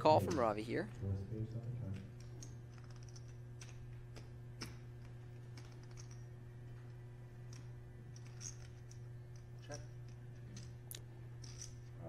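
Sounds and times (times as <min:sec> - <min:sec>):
poker chips clicking: 0:02.2 - 0:04.8, 0:05.6 - 0:06.2, 0:07.5 - 0:09.7.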